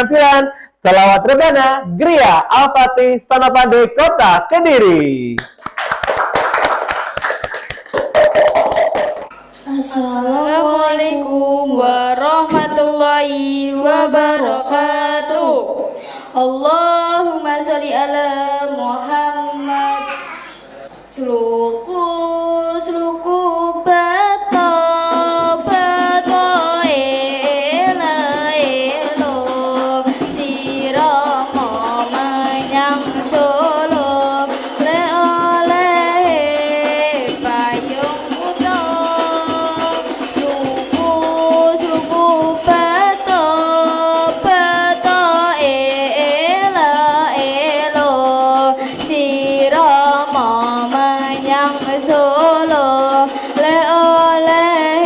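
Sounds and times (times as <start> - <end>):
frame drums beating: 6.0 - 9.6, 24.5 - 55.0
children singing devotional song: 9.4 - 55.0.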